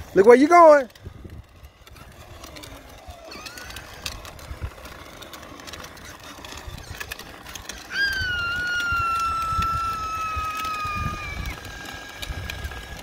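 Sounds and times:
electric motor whine: 0.0s - 13.0s.

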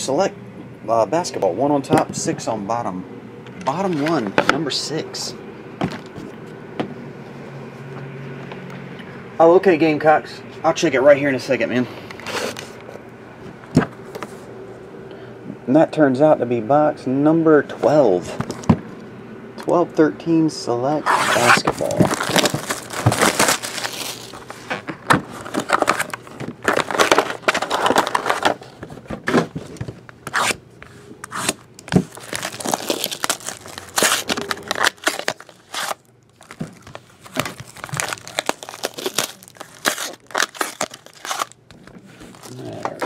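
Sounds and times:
wrapper tearing open: 21.1s - 28.6s, 31.3s - 41.6s, 42.3s - 43.0s
shrink wrap crinkling and tearing: 21.1s - 28.8s, 31.3s - 43.0s.

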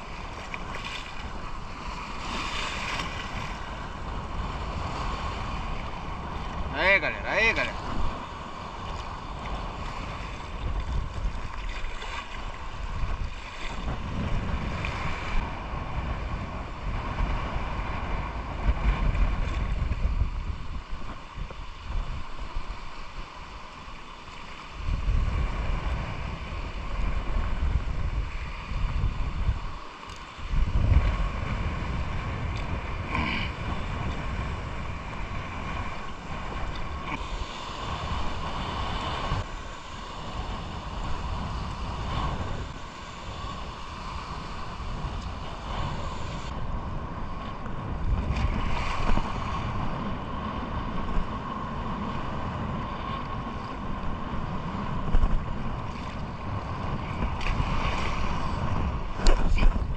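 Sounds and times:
small waves lapping: 0.0s - 7.0s, 7.8s - 14.1s
wind noise on microphone: 0.0s - 59.9s.

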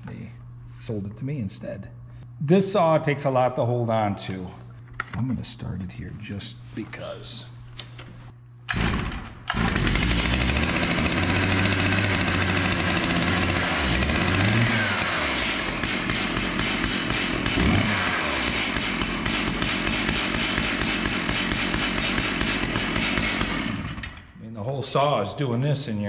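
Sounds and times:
chainsaw engine revving and idling: 8.7s - 24.2s.

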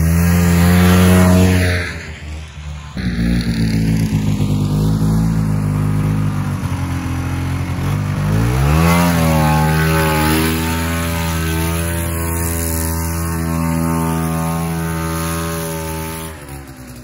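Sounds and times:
snowmobile engine revving: 0.0s - 17.0s.

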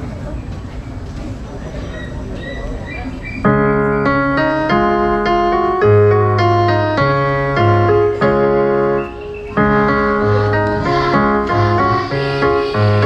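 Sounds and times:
keyboard playing sustained chords: 3.5s - 13.0s.

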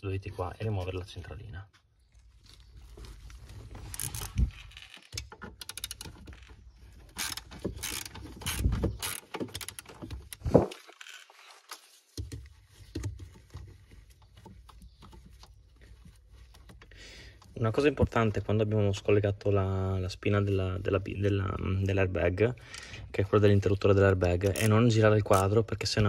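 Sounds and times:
metal and plastic parts knocking: 3.9s - 10.8s
ratchet wrench clicking: 7.2s - 9.8s.

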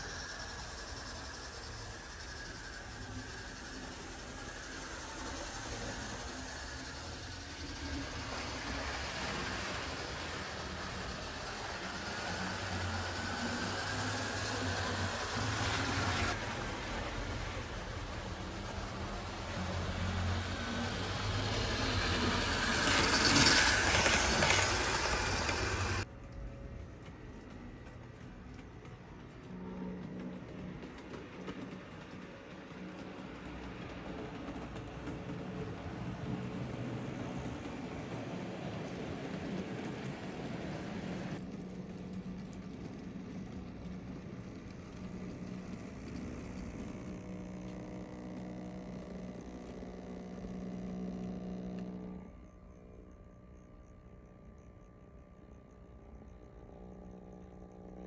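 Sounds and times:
bright hissing noise: 0.0s - 26.0s
wheels clicking over rails: 0.0s - 52.4s
model train running on track: 0.0s - 58.0s.

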